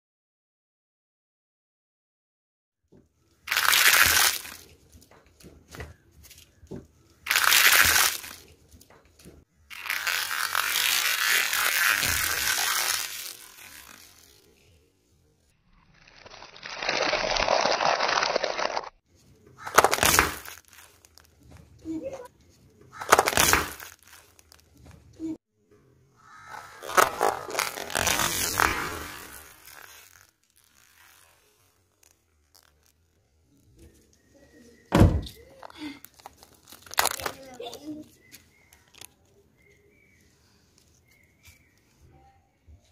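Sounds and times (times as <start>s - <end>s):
paper liners crunching under tyre: 3.3s - 5.5s, 6.2s - 14.8s, 16.0s - 25.2s, 26.4s - 34.4s, 35.2s - 39.8s
small paper crackles: 3.3s - 14.8s, 16.1s - 25.1s, 26.6s - 34.3s, 35.4s - 39.8s.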